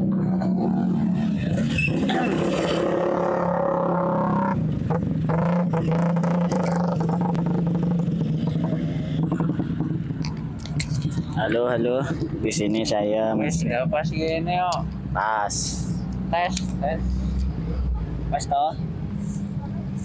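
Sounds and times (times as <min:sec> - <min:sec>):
vehicle engine humming: 0:00.0 - 0:20.0.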